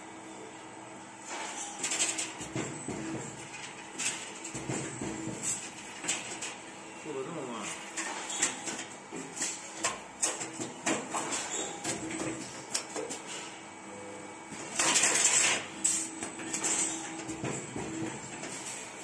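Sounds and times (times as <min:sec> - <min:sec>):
machine clicking and clunking: 0:01.3 - 0:06.6, 0:14.5 - 0:19.0.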